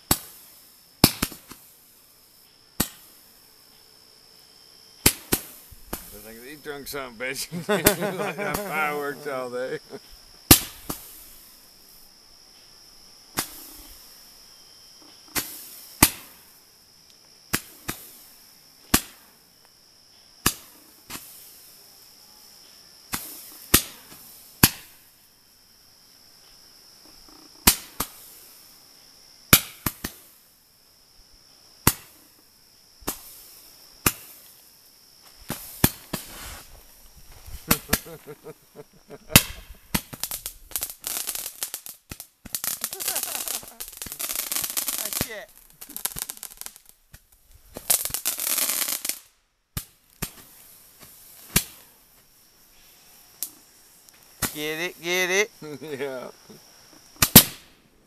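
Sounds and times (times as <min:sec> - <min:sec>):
fireworks popping: 0:00.0 - 0:01.7, 0:02.8 - 0:03.2, 0:05.0 - 0:11.3, 0:13.3 - 0:14.0, 0:27.0 - 0:28.4, 0:35.3 - 0:51.8, 0:53.4 - 0:55.5, 0:57.0 - 0:57.8
fireworks crackling: 0:00.0 - 0:03.4, 0:05.0 - 0:12.0, 0:13.3 - 0:14.1, 0:15.3 - 0:16.6, 0:17.4 - 0:19.3, 0:20.4 - 0:21.8, 0:23.1 - 0:25.2, 0:27.3 - 0:28.7, 0:33.1 - 0:58.0
crickets chirping: 0:00.0 - 0:58.0.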